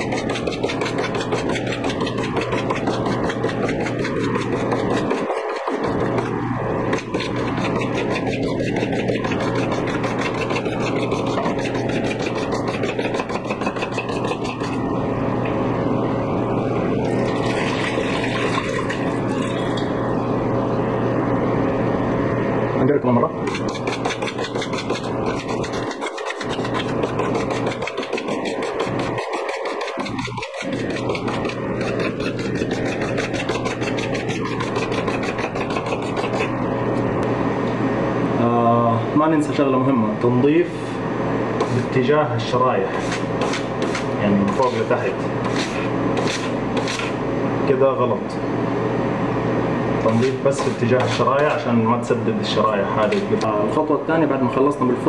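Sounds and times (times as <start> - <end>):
brush scrubbing metal fins: 0.0 - 6.2, 7.0 - 14.8, 23.5 - 36.6
steady hum and hiss: 0.0 - 55.0.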